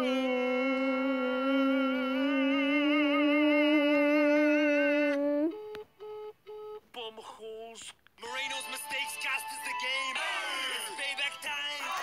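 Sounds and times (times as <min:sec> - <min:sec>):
boy singing a held note: 0:00.0 - 0:05.5.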